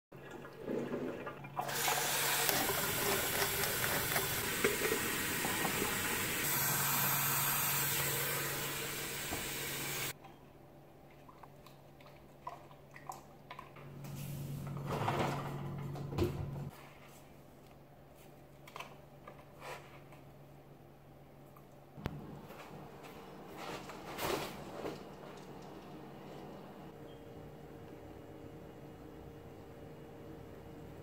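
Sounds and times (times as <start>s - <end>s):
water running into a steel sink: 0.2s - 10.1s.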